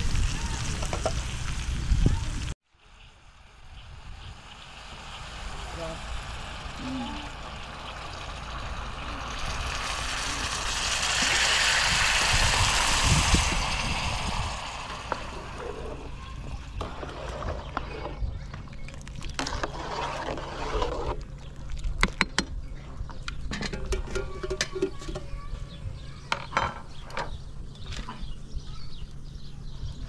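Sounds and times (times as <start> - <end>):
water sizzling in hot pan: 0.0 - 17.2.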